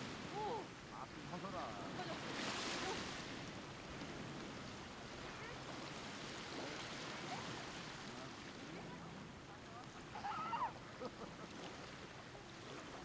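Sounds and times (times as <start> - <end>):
waves washing on beach: 0.0 - 13.0
faint distant voices: 4.8 - 13.0.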